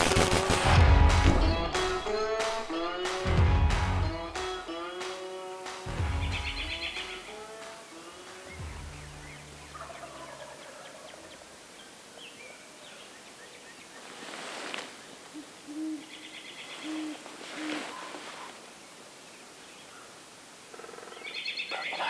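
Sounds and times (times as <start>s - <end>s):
faint birdsong: 4.1s - 22.0s
owl hooting: 15.3s - 18.6s.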